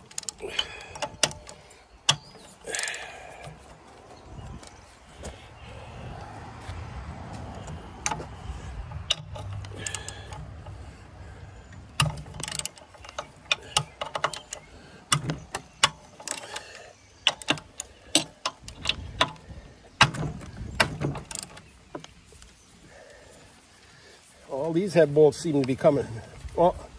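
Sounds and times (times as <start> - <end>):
socket ratchet clicking: 8.9 - 10.7.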